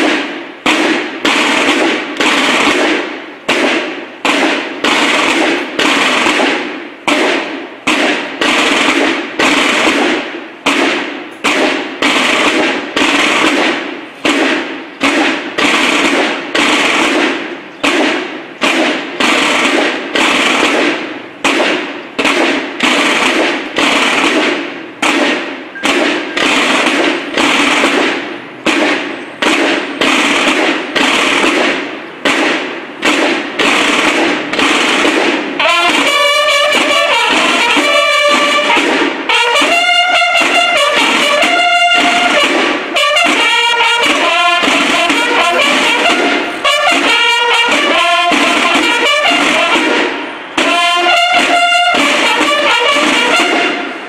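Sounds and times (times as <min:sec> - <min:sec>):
snare drums beating a march: 0:00.0 - 0:54.0.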